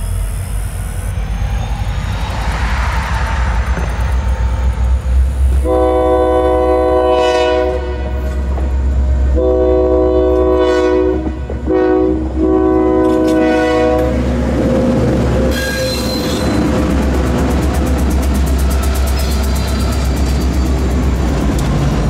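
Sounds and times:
freight train rumble: 0.0 - 22.0
locomotive air horn blasts: 5.6 - 8.6, 9.3 - 14.3.

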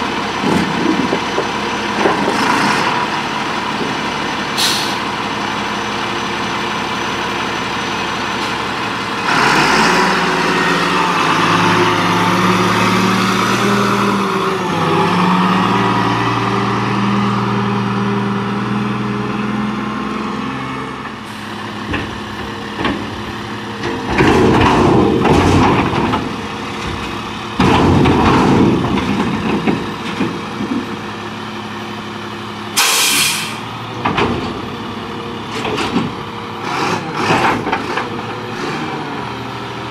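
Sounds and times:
garbage truck diesel engine: 0.0 - 39.9
air brake hiss: 4.6 - 5.1, 32.8 - 33.7.

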